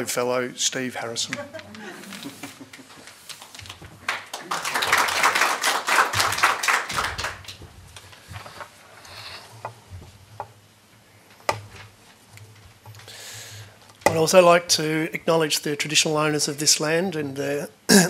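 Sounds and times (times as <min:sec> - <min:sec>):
audience applauding: 0:01.7 - 0:07.6.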